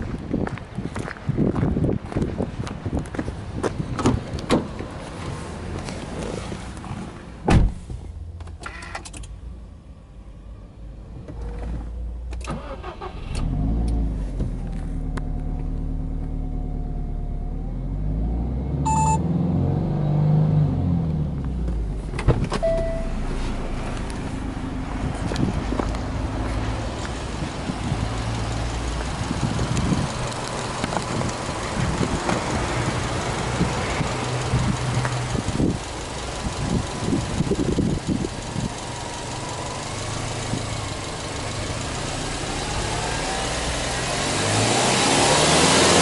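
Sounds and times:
car engine starting and idling: 3.9s - 46.0s
car door shutting: 4.0s - 4.9s, 7.4s - 9.3s, 21.6s - 23.8s
short electronic chime: 22.6s - 23.3s.

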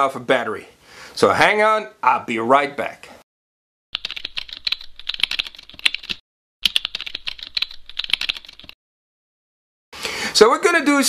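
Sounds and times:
keyboard typing: 4.0s - 8.8s.

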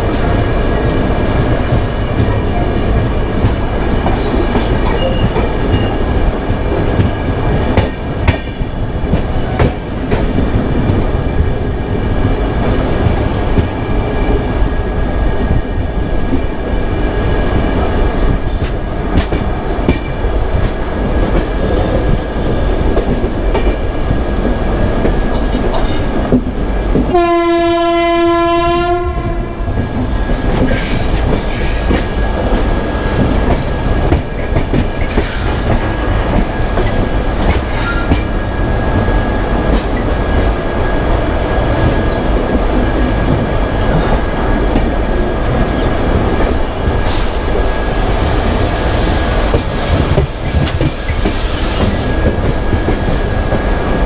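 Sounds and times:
train rumbling at speed: 0.0s - 54.0s
locomotive horn blast: 27.1s - 29.7s.

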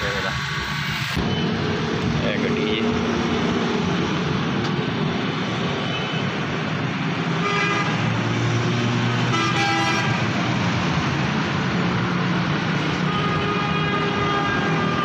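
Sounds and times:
traffic noise: 0.0s - 15.0s
vehicle horn toots: 9.3s - 10.2s.

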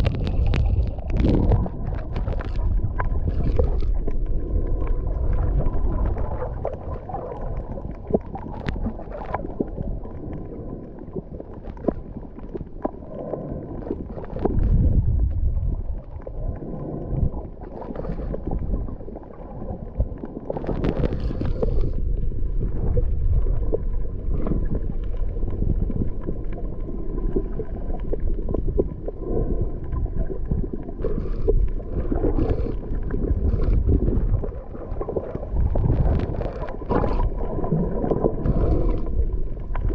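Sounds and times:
muffled underwater rumbling: 0.0s - 39.9s
underwater clicks and crackles: 0.0s - 39.9s.

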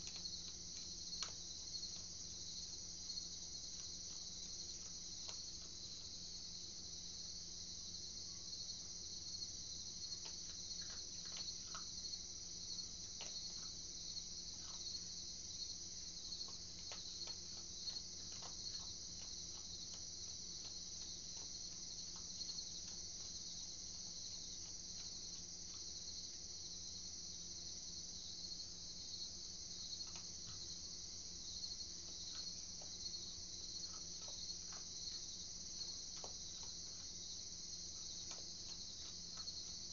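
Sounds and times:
animal chewing dry food: 0.0s - 7.0s, 9.8s - 27.6s, 29.6s - 39.9s
crickets chirping: 0.0s - 39.9s.

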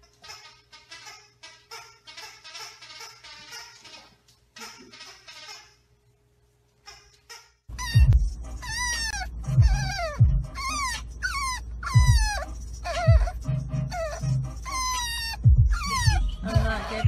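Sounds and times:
puppy whining: 6.9s - 17.0s.

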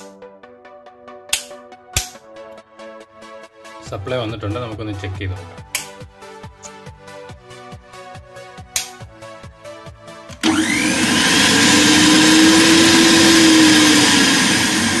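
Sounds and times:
switch clicking: 1.3s - 2.2s, 5.7s - 6.0s, 8.7s - 9.0s
mixer grinder motor whining: 10.3s - 15.0s.

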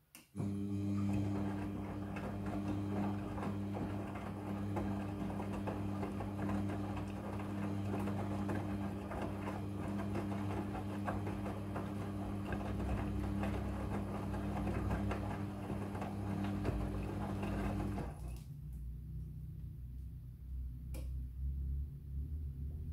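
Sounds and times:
washing machine motor hum: 0.3s - 18.4s.

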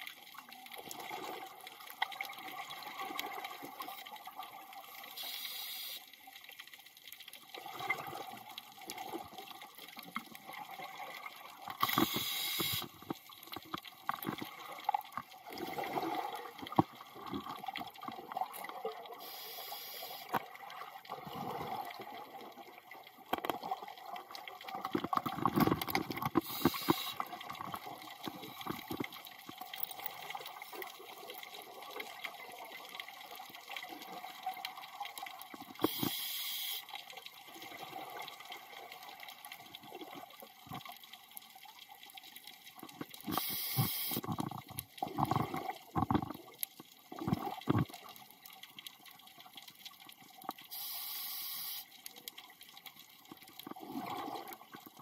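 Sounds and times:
scuba regulator hiss: 5.2s - 6.0s, 11.8s - 12.9s, 19.2s - 20.3s, 26.4s - 27.2s, 35.9s - 36.8s, 43.3s - 44.3s, 50.7s - 51.9s
exhaled bubbles gurgling: 7.5s - 9.5s, 14.1s - 19.4s, 20.4s - 29.6s, 43.0s - 48.2s, 53.6s - 55.0s.

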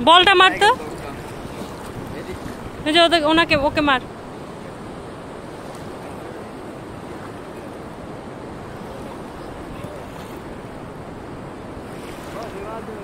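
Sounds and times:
gentle surf: 0.0s - 13.0s
wind: 0.0s - 13.0s.

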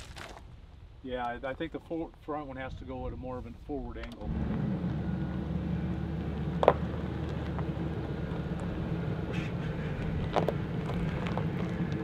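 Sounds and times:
engine idling: 4.2s - 12.0s.

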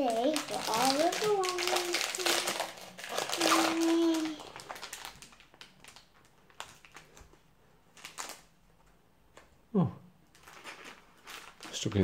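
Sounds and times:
person speaking: 0.0s - 2.6s
foil packet crinkling: 0.0s - 8.6s, 10.3s - 12.0s.

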